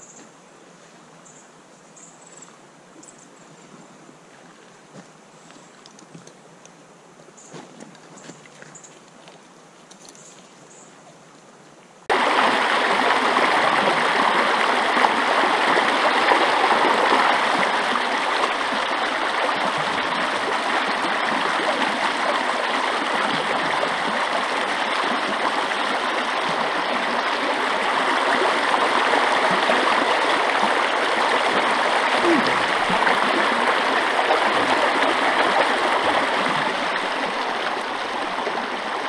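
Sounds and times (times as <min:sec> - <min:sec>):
creek rushing over stones: 0:12.1 - 0:39.0.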